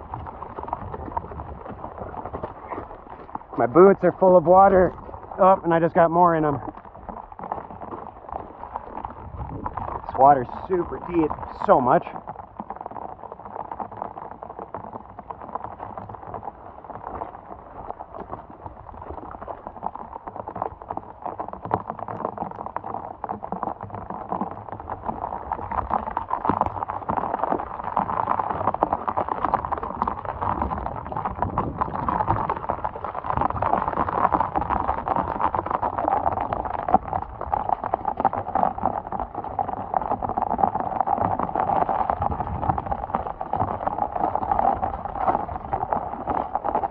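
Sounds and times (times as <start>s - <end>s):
footsteps splashing through water: 0.0s - 10.1s.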